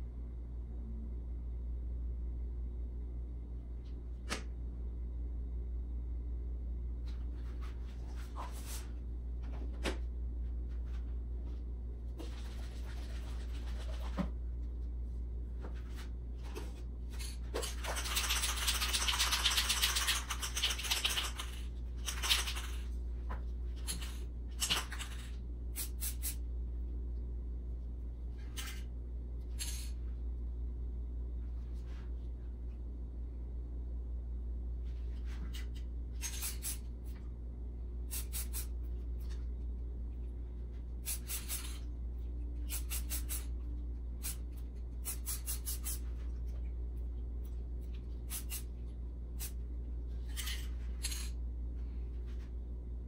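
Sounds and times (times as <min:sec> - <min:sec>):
low steady hum: 0:00.0 - 0:53.0
spray can rattling: 0:17.8 - 0:22.8
spray can hissing: 0:25.8 - 0:26.4, 0:38.1 - 0:38.7, 0:41.0 - 0:41.8, 0:42.7 - 0:43.5, 0:45.0 - 0:46.0, 0:48.3 - 0:48.7.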